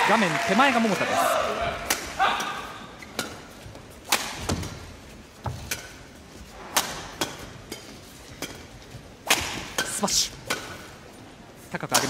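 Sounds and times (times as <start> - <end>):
rackets hitting shuttlecock: 1.7 - 4.8, 6.6 - 11.0.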